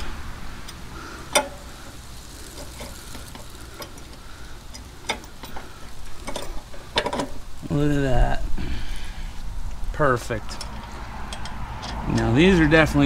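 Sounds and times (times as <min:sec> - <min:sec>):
low steady rumble: 0:00.0 - 0:13.0
light metallic clicks: 0:10.4 - 0:12.8.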